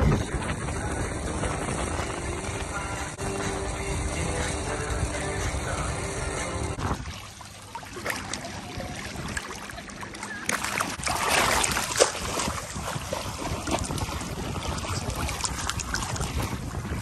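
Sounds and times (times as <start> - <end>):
wind buffeting microphone: 0.0 - 7.4, 11.0 - 17.0
water splashing and sloshing: 0.0 - 17.0
sharp water slap: 10.5 - 14.0.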